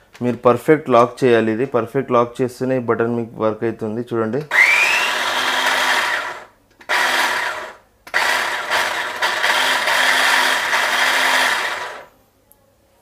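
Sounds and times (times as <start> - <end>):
electric chopper motor running: 4.5 - 12.1.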